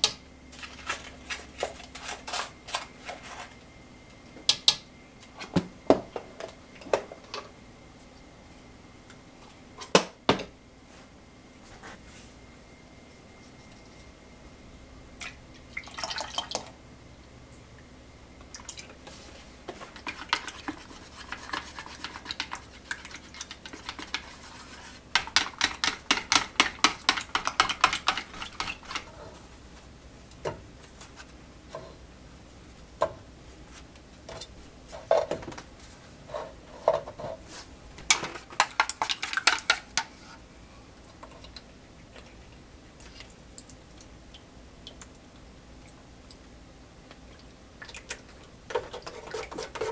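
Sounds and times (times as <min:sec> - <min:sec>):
whisk beating in a plastic jug: 0:19.7 - 0:29.1, 0:38.1 - 0:40.1, 0:48.7 - 0:49.9.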